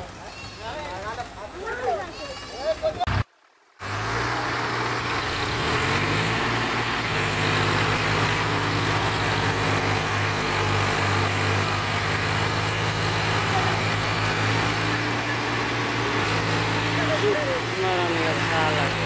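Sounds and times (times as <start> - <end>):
diesel tractor engines under load: 3.8 - 19.0.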